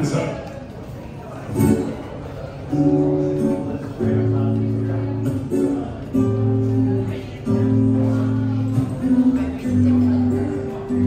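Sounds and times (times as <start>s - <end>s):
guitar background music: 1.5s - 2.0s, 2.7s - 11.0s.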